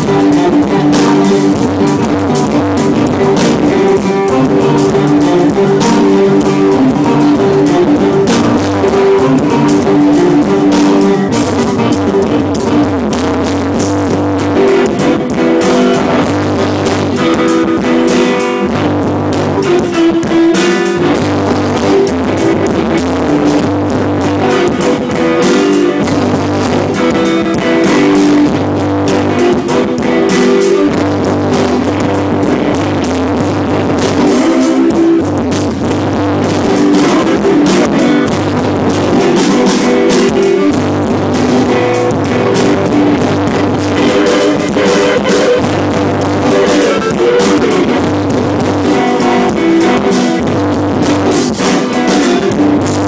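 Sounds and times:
acoustic guitar rock music: 0:00.0 - 0:53.0
bass notes: 0:00.0 - 0:53.0
drum beat: 0:00.0 - 0:53.0.

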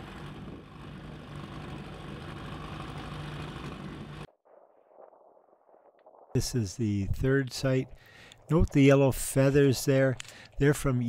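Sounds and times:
boat motor humming: 0:00.0 - 0:04.3.

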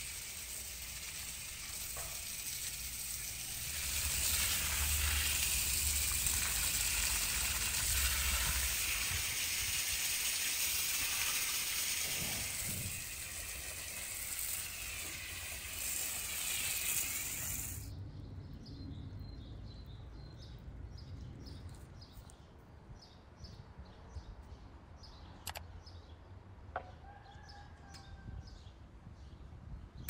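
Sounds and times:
water spraying from garden hose: 0:00.0 - 0:17.9
small birds chirping: 0:10.2 - 0:26.2
sharp clicks: 0:25.4 - 0:25.7.

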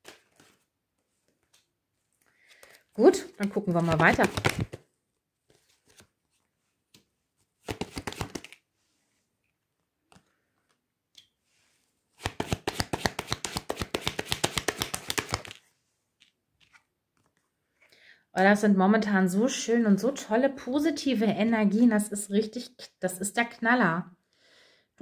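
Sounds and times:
cards shuffling: 0:00.0 - 0:08.6, 0:12.2 - 0:17.5
cards tapping on wooden table: 0:12.2 - 0:15.6.

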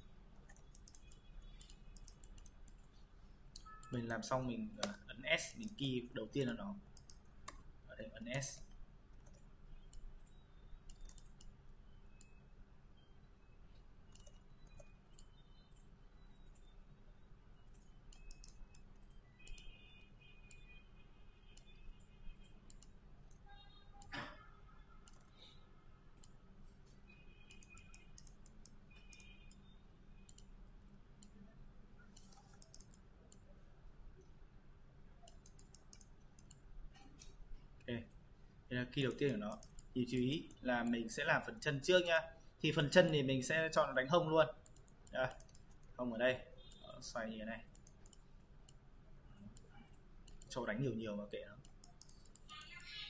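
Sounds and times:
computer mouse and keyboard clicks: 0:00.4 - 0:12.4, 0:14.1 - 0:16.7, 0:17.7 - 0:19.8, 0:21.5 - 0:23.4, 0:25.0 - 0:25.5, 0:26.2 - 0:31.4, 0:32.0 - 0:33.5, 0:35.2 - 0:38.2, 0:39.0 - 0:41.0, 0:44.6 - 0:46.0, 0:47.6 - 0:53.0
faint computer mouse clicks: 0:00.5 - 0:02.9, 0:14.1 - 0:15.9, 0:22.7 - 0:23.4, 0:25.0 - 0:25.5, 0:30.3 - 0:31.4, 0:32.1 - 0:33.4, 0:35.2 - 0:37.9, 0:39.0 - 0:40.6, 0:47.7 - 0:50.6, 0:51.6 - 0:52.9.

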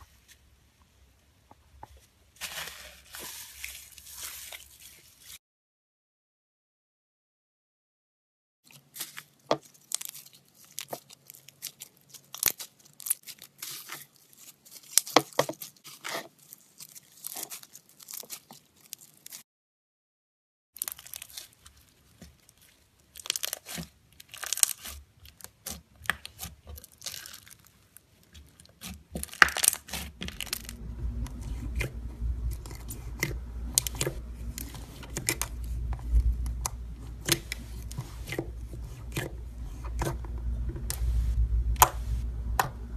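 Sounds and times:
slime crackling and popping: 0:08.9 - 0:19.4, 0:20.8 - 0:40.1
low rumble: 0:30.2 - 0:42.9.

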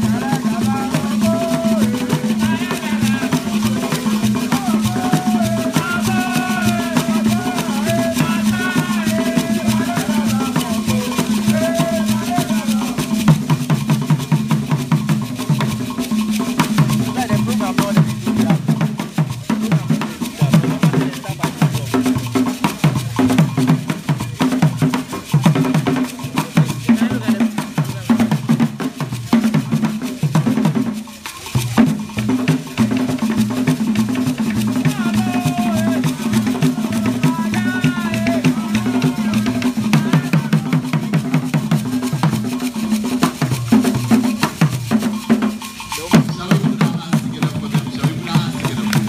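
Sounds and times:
wooden hand drums: 0:00.0 - 0:49.0.

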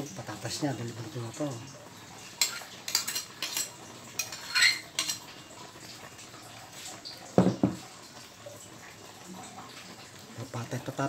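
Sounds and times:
metal spoon scraping wok: 0:02.4 - 0:05.3
metal cookware knock: 0:07.4 - 0:07.8.

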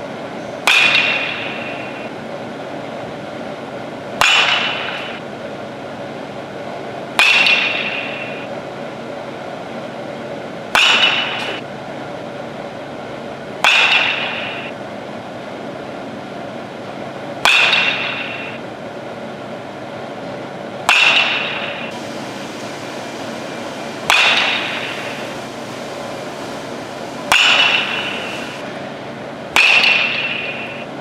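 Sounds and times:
baseball bat hitting ball: 0:00.6 - 0:02.1, 0:04.2 - 0:05.2, 0:07.1 - 0:08.5, 0:10.7 - 0:11.6, 0:13.6 - 0:14.8, 0:17.4 - 0:18.6, 0:20.8 - 0:22.0, 0:24.0 - 0:25.5, 0:27.1 - 0:28.6, 0:29.5 - 0:30.9.

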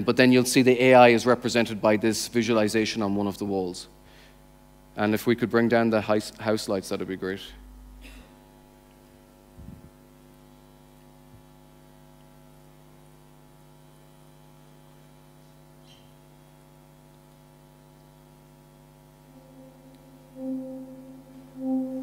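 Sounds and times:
faint electrical hum: 0:00.0 - 0:22.0
low tone: 0:19.2 - 0:22.0.

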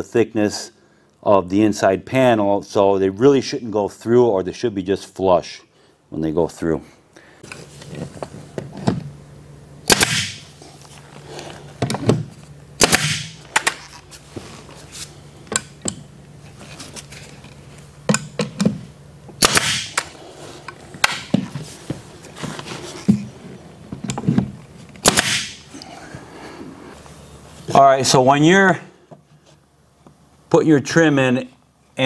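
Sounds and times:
nail gun shots: 0:09.8 - 0:10.5, 0:12.8 - 0:13.8, 0:19.4 - 0:20.1, 0:21.0 - 0:21.3, 0:25.0 - 0:25.6.

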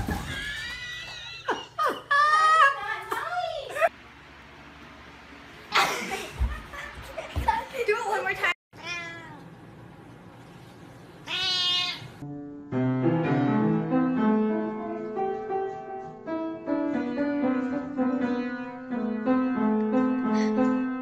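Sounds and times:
cat meowing: 0:08.7 - 0:09.4, 0:11.2 - 0:12.2
piano chords: 0:12.2 - 0:21.0.

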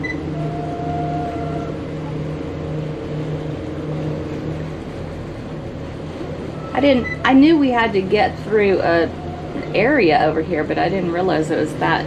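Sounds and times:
boat engines droning: 0:00.0 - 0:12.0.

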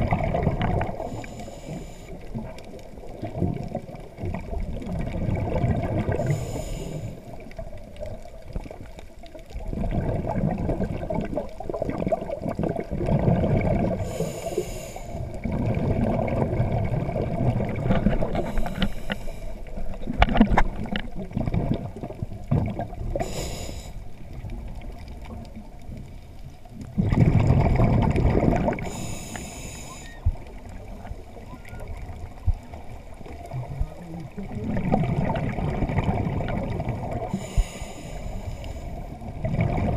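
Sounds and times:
bubbling of exhaled air: 0:00.0 - 0:25.9, 0:26.7 - 0:39.9
regulator inhale hiss: 0:01.0 - 0:02.4, 0:06.1 - 0:07.4, 0:13.9 - 0:15.4, 0:18.3 - 0:19.8, 0:23.1 - 0:24.1, 0:28.8 - 0:30.3, 0:37.2 - 0:39.2.

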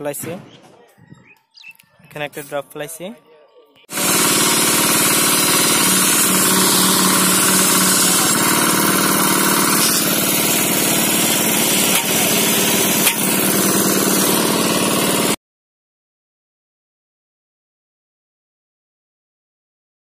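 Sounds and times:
engine running: 0:03.9 - 0:15.4.

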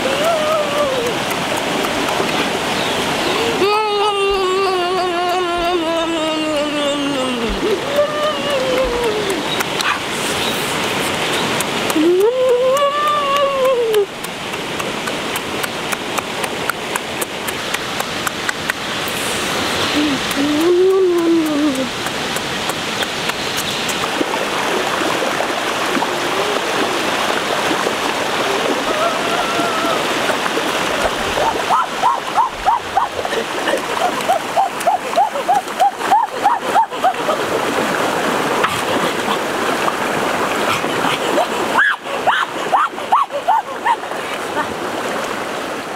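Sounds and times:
stream water rushing: 0:00.0 - 0:45.9
rising and falling wail: 0:03.3 - 0:09.5, 0:28.5 - 0:30.2
sharp clicks: 0:20.3 - 0:24.1.

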